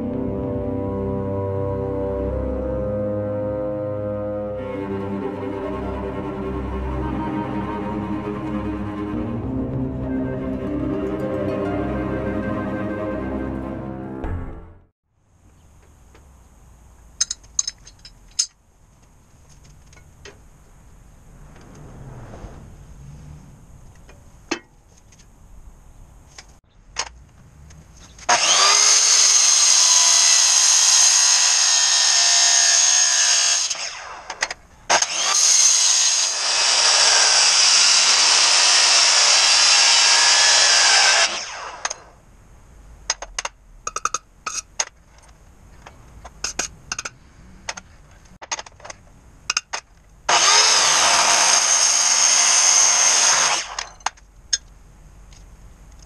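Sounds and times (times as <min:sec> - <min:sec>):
clicks and knocks of metal: 0:17.2 - 0:20.4, 0:43.1 - 0:50.1
miter saw cutting metal: 0:28.3 - 0:42.2, 0:50.3 - 0:54.0.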